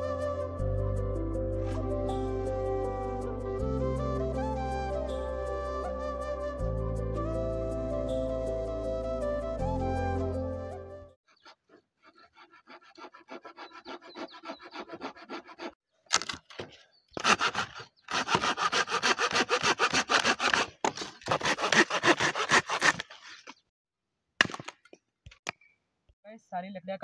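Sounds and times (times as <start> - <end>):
hand saw cutting branches: 11.3 - 16.4, 17.2 - 23.6.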